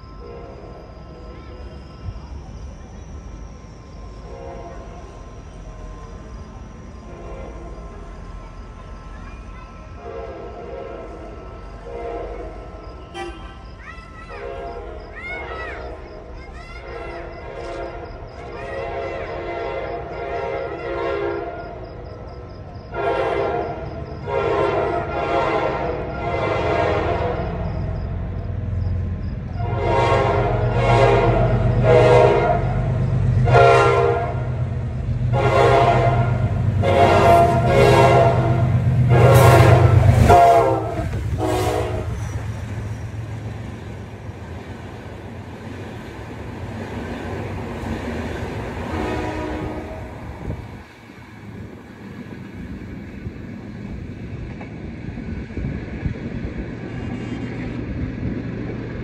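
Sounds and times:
locomotive engine rumble: 0.0s - 59.0s
train coaches rolling past: 0.0s - 59.0s
locomotive air horn: 0.2s - 0.8s, 4.2s - 5.2s, 10.0s - 13.7s, 16.9s - 21.8s, 22.9s - 27.6s, 29.6s - 34.6s, 35.3s - 42.4s, 48.8s - 50.5s.

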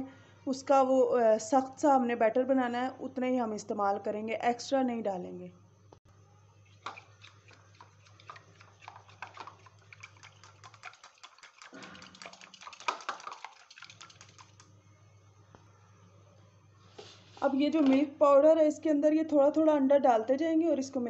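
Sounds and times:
whisk clicking against a bowl: 6.8s - 14.7s.

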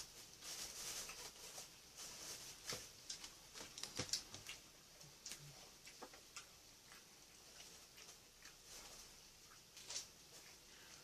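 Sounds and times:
plastic bag crinkling: 0.0s - 4.5s.

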